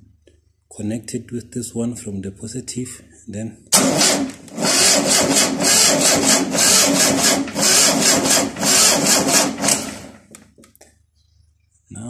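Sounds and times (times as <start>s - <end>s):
starter motor cranking engine: 3.7s - 10.3s.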